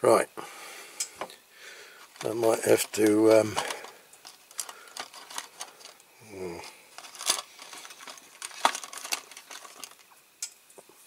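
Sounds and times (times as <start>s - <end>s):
man humming: 6.2s - 6.8s.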